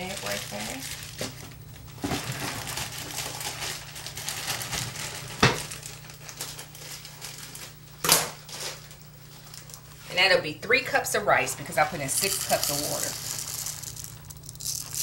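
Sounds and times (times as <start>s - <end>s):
plastic bag crinkling: 0.0s - 10.1s, 11.6s - 15.0s.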